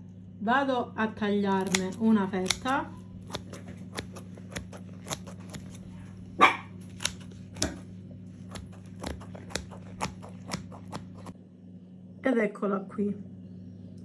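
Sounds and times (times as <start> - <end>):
blade cutting crunchy flatbread: 1.4 - 11.4.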